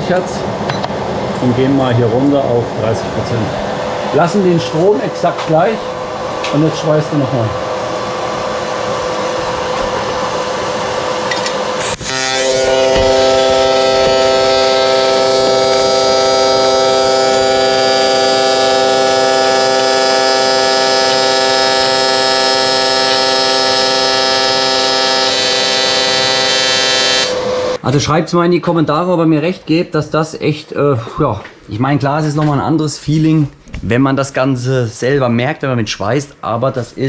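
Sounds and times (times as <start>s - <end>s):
welding arc buzzing: 3.6s - 27.8s.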